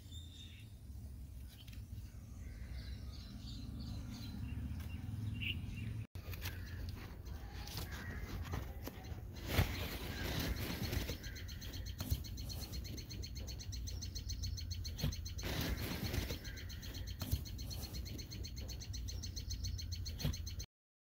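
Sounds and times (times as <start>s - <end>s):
rapid chirping trill: 9.1s - 20.7s.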